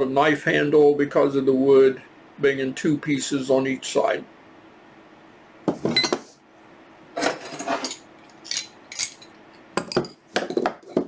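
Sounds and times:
metal wrenches clinking: 0:07.4 - 0:10.2.

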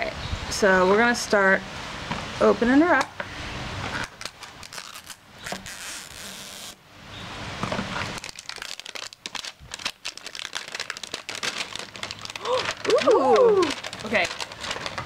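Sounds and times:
plastic wrapping crinkling and tearing: 0:04.0 - 0:06.8, 0:08.0 - 0:15.0.

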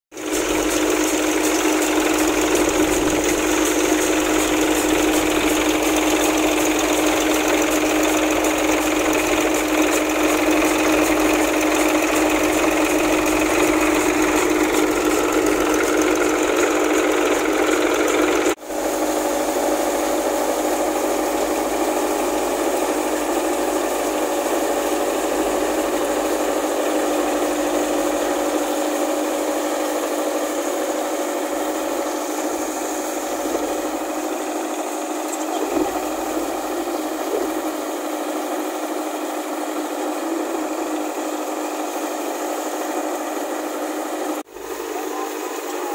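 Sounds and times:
thresher mechanical hum: 0:00.2 - 0:45.9
rushing hiss of threshed material: 0:18.6 - 0:35.3.

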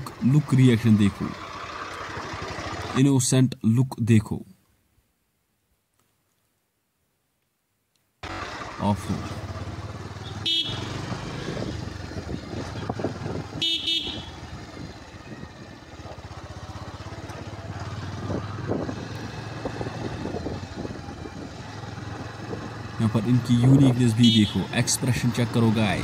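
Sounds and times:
motorcycle engine running: 0:00.0 - 0:03.0, 0:08.2 - 0:26.0
motorcycle horn honks: 0:10.2 - 0:11.2, 0:13.5 - 0:14.6, 0:23.8 - 0:24.7.

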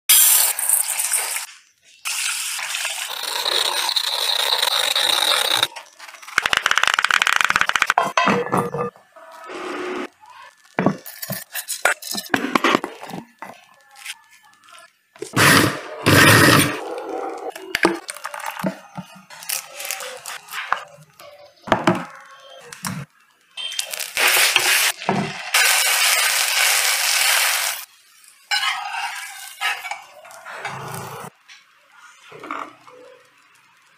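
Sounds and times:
batter sizzling on hot griddle: 0:23.7 - 0:30.0.

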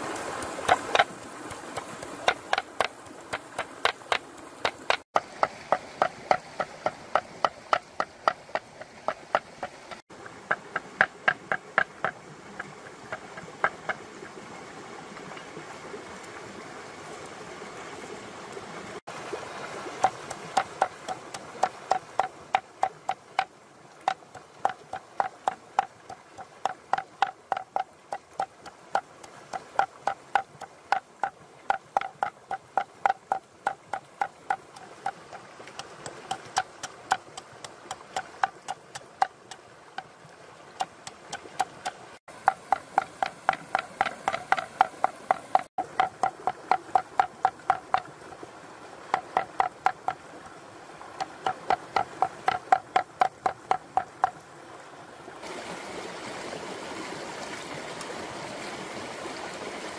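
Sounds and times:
rhythmic knocking: 0:02.2 - 0:05.0, 0:42.4 - 0:48.0, 0:51.4 - 0:54.3.

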